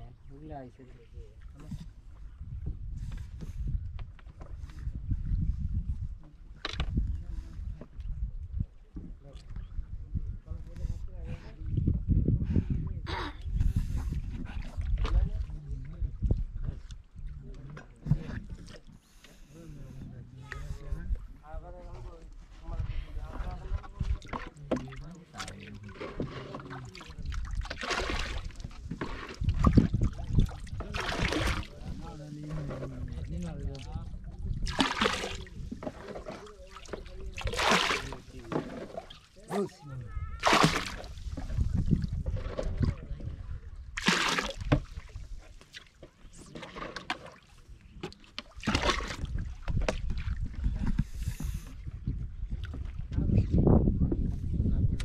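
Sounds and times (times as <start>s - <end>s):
wind rumble on microphone: 0.0s - 18.8s, 19.6s - 25.1s, 25.7s - 39.0s, 39.8s - 45.5s, 48.6s - 55.0s
water sloshing and splashing: 13.4s - 19.6s, 22.0s - 53.4s.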